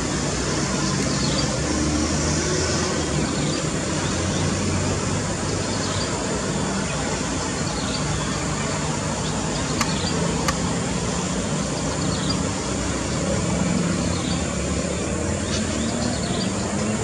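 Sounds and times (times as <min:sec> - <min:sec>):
distant road traffic rumble: 0:00.0 - 0:17.0
sharp clicks: 0:09.7 - 0:10.7.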